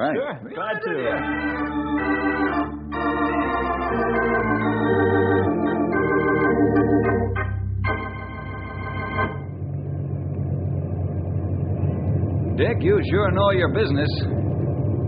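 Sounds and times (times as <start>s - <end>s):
organ chords: 0.9s - 15.0s.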